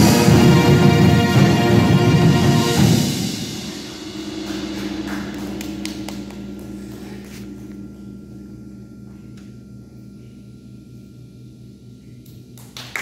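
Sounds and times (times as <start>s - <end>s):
band chord and percussion ringing: 0.0s - 12.0s
faint low hum: 3.5s - 13.0s.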